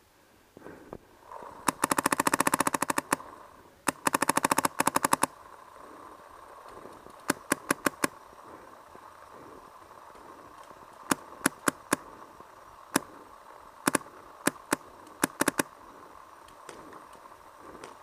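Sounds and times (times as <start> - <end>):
paintball marker firing: 7.2 - 8.2, 13.9 - 15.7.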